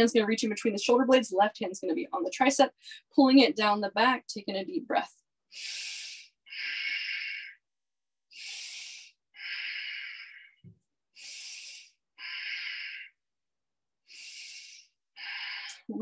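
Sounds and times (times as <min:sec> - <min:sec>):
woman breathing deeply: 0:05.5 - 0:07.6, 0:08.3 - 0:13.2, 0:14.0 - 0:15.9.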